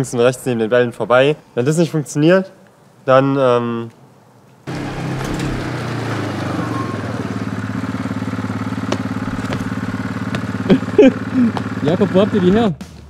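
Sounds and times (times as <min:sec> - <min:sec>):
quad bike engine running: 0:04.7 - 0:13.0.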